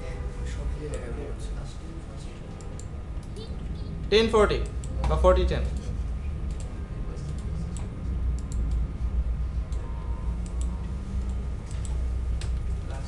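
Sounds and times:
steady low hum: 0:00.0 - 0:13.0
sharp computer clicks: 0:04.4 - 0:08.9, 0:09.6 - 0:12.7.

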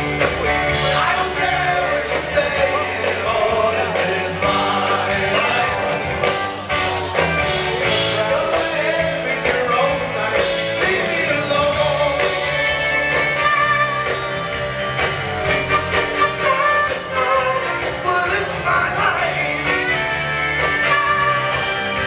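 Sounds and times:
bass guitar: 0:00.0 - 0:22.0
drums: 0:00.0 - 0:22.0
electric guitar: 0:00.0 - 0:22.0
lead vocal singing: 0:00.7 - 0:06.6, 0:07.7 - 0:13.6, 0:16.2 - 0:21.4.

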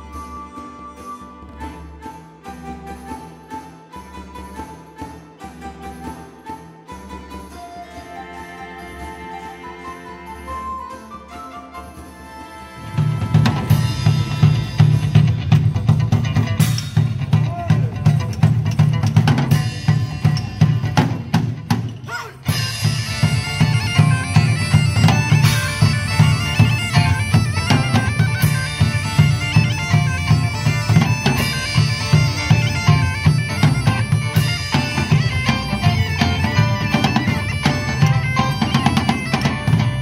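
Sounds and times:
bagpipes playing a tune: 0:12.0 - 0:15.4, 0:22.5 - 0:40.0
drums beating: 0:12.8 - 0:40.0.

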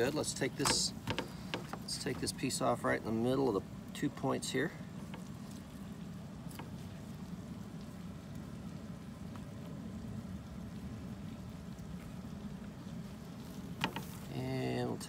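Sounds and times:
faint low background rumble: 0:00.0 - 0:15.0.

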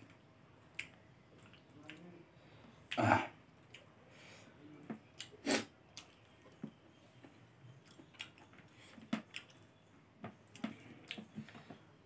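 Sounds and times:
person chewing food: 0:00.1 - 0:02.1, 0:04.9 - 0:11.8.

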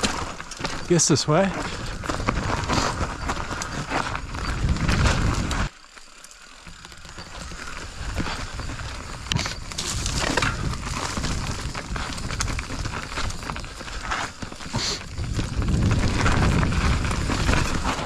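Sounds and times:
bike chain clicks and rattles: 0:00.0 - 0:18.0
tyres crunching over dirt and rocks: 0:00.0 - 0:18.0.

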